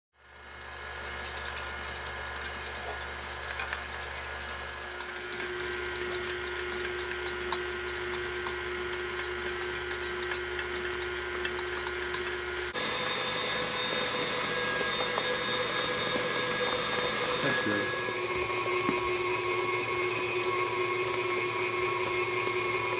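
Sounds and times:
fork beating eggs in metal bowl: 0.1s - 12.8s
stand mixer motor whine: 4.3s - 22.9s.

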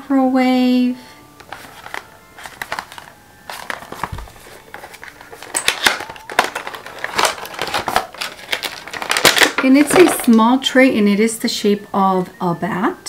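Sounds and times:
packaging crinkling and rustling: 1.4s - 10.4s.

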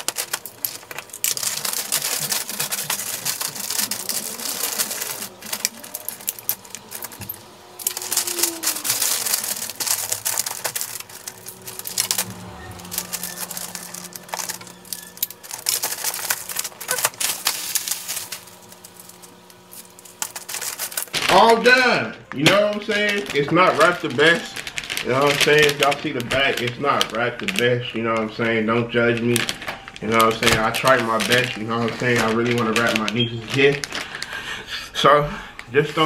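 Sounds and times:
wrapping paper crinkling: 0.0s - 36.0s.

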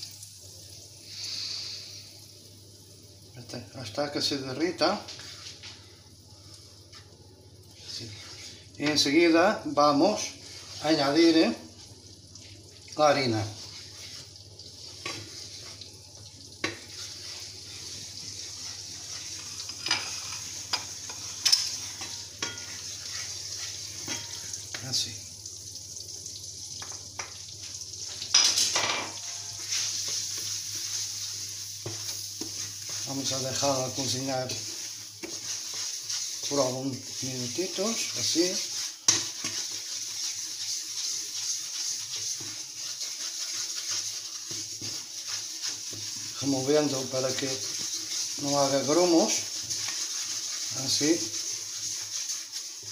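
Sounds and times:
butter sizzling in a frying pan: 0.0s - 52.9s
wooden spatula scraping a pan: 7.8s - 9.3s, 10.1s - 11.6s, 13.2s - 15.9s, 16.6s - 24.8s, 28.3s - 52.9s.

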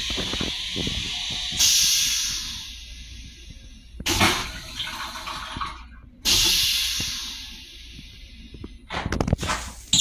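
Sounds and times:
toilet rinse water spraying: 4.1s - 7.6s.

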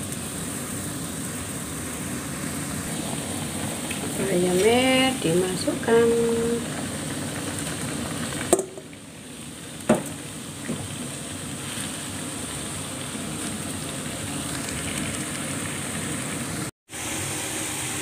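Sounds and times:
soup boiling in a pot: 0.0s - 18.0s
knocks on a pot: 8.5s - 8.9s, 9.9s - 10.8s.

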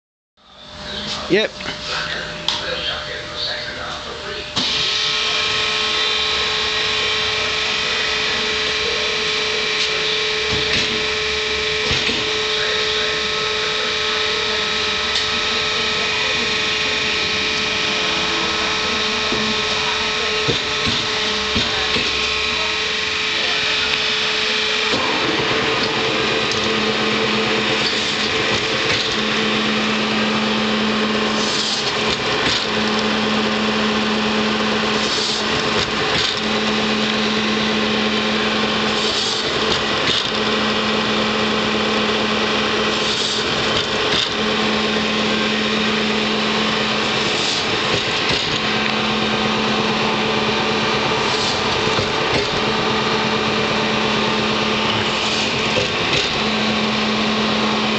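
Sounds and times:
log splitter machine hum: 0.4s - 57.9s
low machine tone: 0.4s - 57.9s
high noisy surges: 0.6s - 57.9s.

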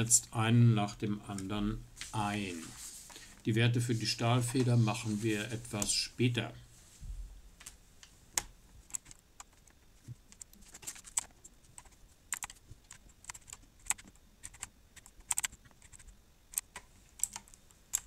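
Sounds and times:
computer keyboard typing clicks: 10.3s - 18.0s.

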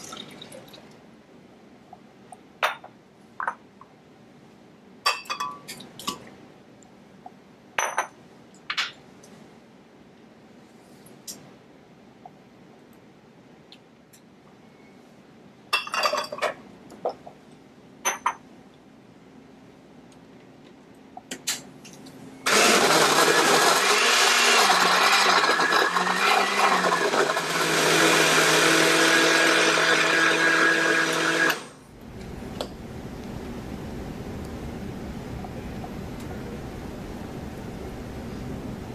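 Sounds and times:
blender crushing ice: 22.5s - 31.8s.

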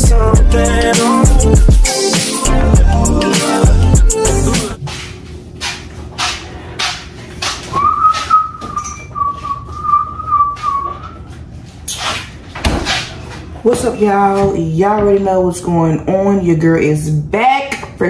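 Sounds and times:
person whistling a held note: 7.8s - 11.1s.

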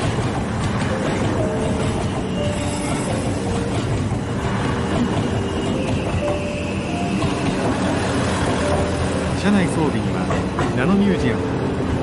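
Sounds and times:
train rumbling past: 0.0s - 12.0s
faint train squeals: 1.1s - 9.0s.

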